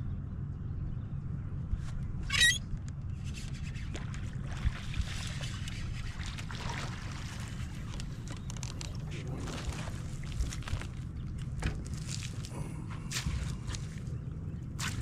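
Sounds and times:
steady low rumble: 0.0 - 15.0
water splashing: 3.9 - 11.1.

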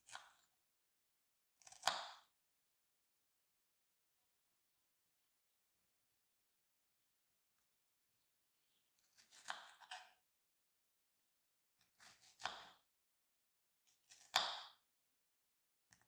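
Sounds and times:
knife slicing strawberries: 0.1 - 0.4, 1.6 - 2.3, 9.0 - 10.1, 12.0 - 12.8, 14.0 - 14.7.

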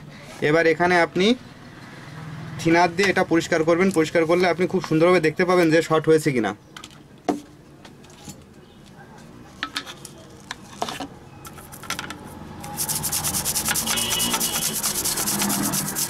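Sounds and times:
brush scrubbing circuit board: 12.6 - 16.0.

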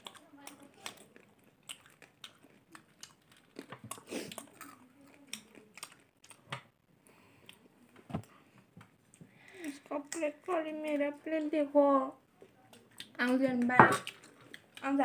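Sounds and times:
popcorn being crunched and chewed: 0.0 - 6.5.

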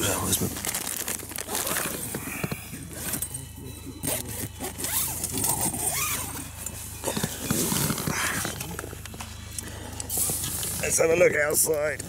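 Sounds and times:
tent fabric rustling: 0.0 - 3.2, 4.0 - 8.7
scrapes and clicks of rummaging: 0.0 - 10.9.

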